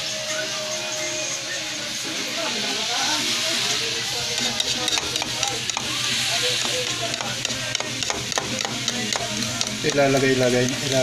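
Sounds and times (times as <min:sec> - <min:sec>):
frying hiss: 0:00.0 - 0:11.0
spoon beating eggs in bowl: 0:04.3 - 0:11.0.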